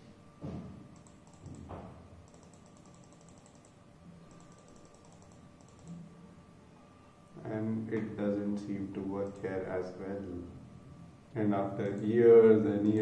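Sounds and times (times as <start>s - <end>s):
keyboard and mouse clicking: 1.0s - 6.0s, 9.2s - 9.5s, 11.8s - 12.2s.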